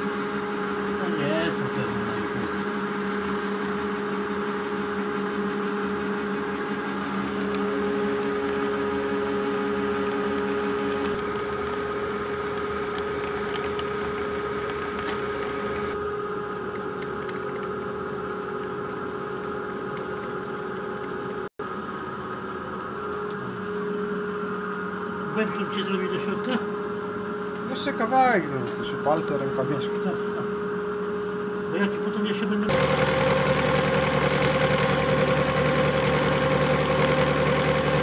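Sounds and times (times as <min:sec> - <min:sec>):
metal lathe running: 0:00.0 - 0:24.0, 0:31.7 - 0:38.0.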